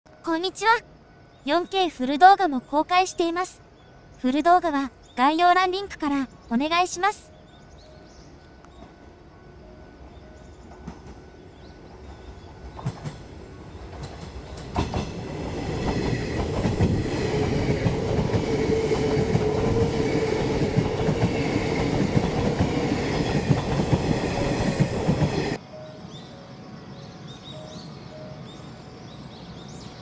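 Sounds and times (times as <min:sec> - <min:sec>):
steady train hum: 0:00.1 - 0:30.0
train wheels clattering: 0:10.6 - 0:25.6.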